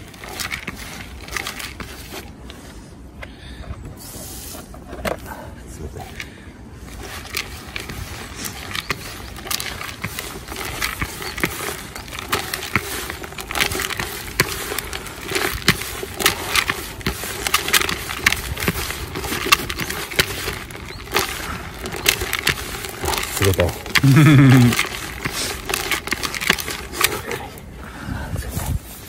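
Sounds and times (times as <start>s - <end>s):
hands kneading bait crackling: 6.1s - 27.7s.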